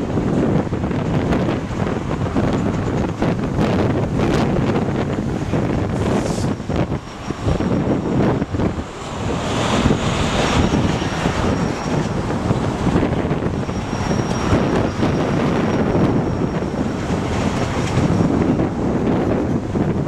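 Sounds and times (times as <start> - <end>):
train flatcars rumbling past: 0.0 - 20.0
wind buffeting microphone: 0.0 - 20.0.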